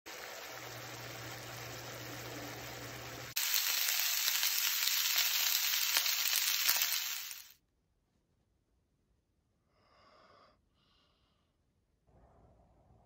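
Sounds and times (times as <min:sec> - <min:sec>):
crackling sizzle of rice frying: 0:00.0 - 0:07.6
food sizzling in a frying pan: 0:00.1 - 0:07.6.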